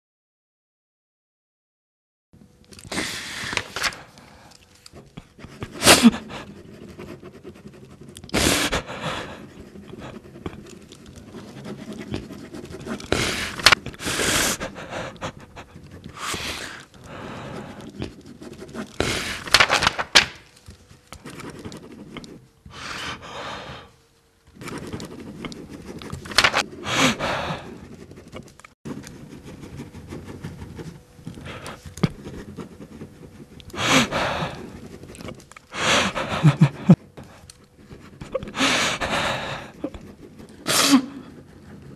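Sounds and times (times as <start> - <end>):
person gasping breaths: 13.0 - 18.1, 22.7 - 24.0, 26.5 - 27.9, 33.7 - 34.8, 35.7 - 37.5, 38.4 - 39.9.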